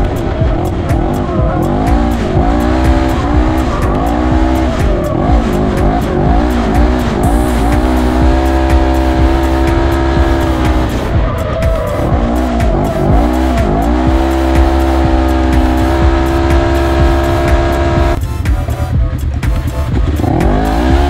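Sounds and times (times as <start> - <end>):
vehicle engine revving: 0.0 - 21.0.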